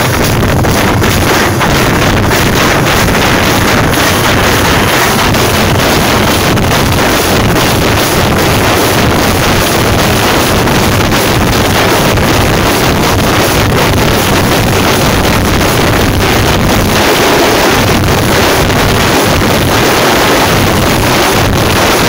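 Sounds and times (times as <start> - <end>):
frame drums beaten with sticks: 0.0 - 22.0.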